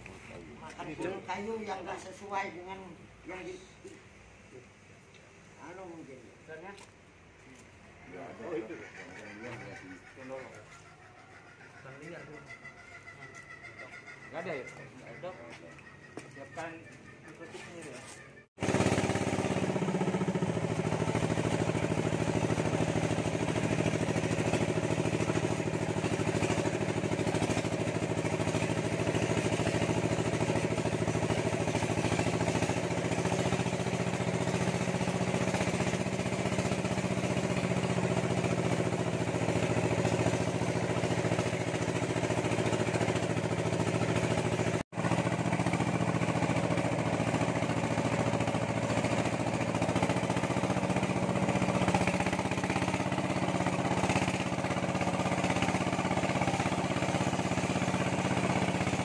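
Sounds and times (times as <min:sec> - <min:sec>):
vehicle engine droning: 0:18.6 - 0:59.0.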